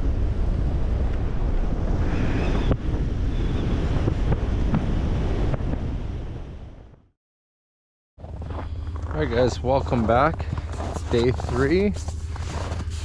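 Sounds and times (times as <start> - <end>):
wind buffeting microphone: 0.0 - 7.0.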